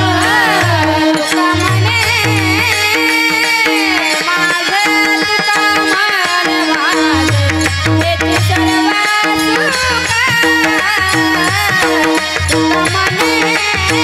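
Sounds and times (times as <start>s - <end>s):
woman singing devotional melody: 0.0s - 14.0s.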